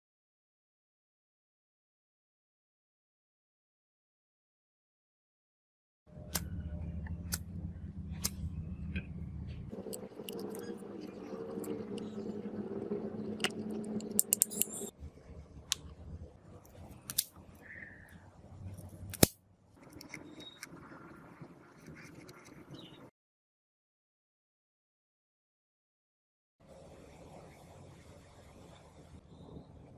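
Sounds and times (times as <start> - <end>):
low background hum: 6.1 - 23.1.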